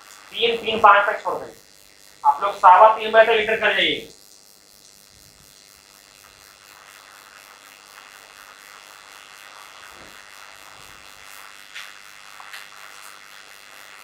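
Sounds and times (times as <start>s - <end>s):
background hiss: 0.0s - 1.6s, 2.2s - 4.1s.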